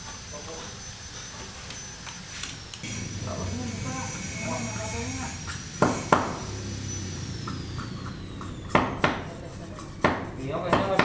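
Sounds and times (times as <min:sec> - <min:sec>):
hammer knocking on wood: 0:05.8 - 0:06.4, 0:08.7 - 0:09.3, 0:10.0 - 0:11.0.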